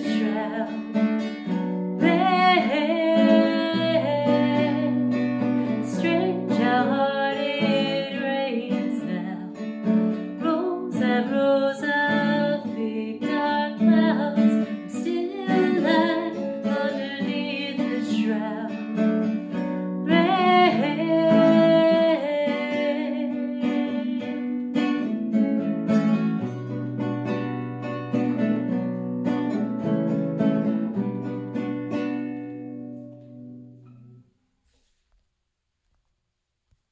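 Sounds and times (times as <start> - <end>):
woman singing: 0.0 - 1.0, 2.0 - 19.0, 20.0 - 25.1
classical guitar: 0.0 - 35.0.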